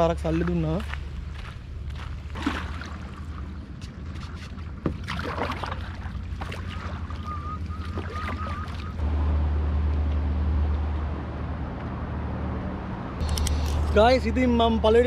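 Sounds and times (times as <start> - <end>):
paddle splashing in water: 2.3 - 9.0
warbling whistle: 6.6 - 9.0.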